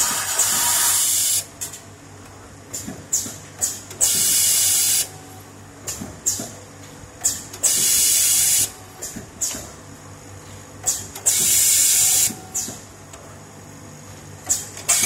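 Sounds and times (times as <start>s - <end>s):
sharp air hisses: 0.0s - 1.4s.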